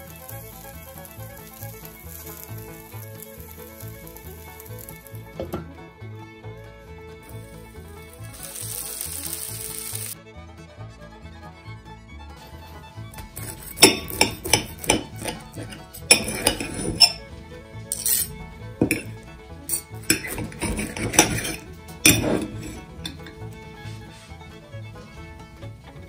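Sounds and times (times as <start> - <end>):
background music: 0.0 - 26.0
cutlery clinking on plate: 13.4 - 17.2, 17.9 - 19.1, 19.7 - 23.3.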